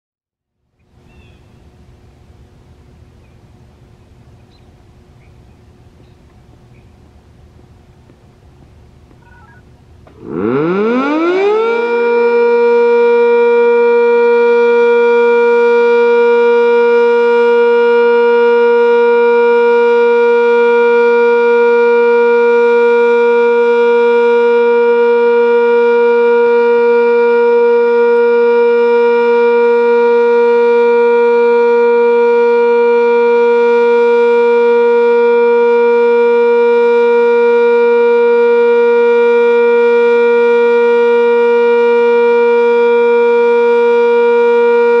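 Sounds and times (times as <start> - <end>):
warning siren two-pitch alert: 9.2 - 45.0.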